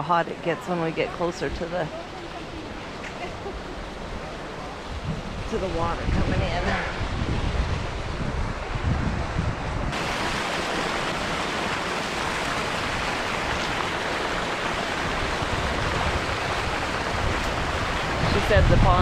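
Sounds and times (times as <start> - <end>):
water pouring into pool: 9.9 - 18.3.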